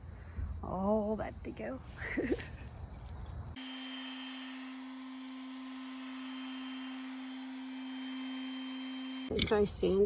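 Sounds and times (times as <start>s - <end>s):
electric palm sander humming: 3.6s - 9.3s.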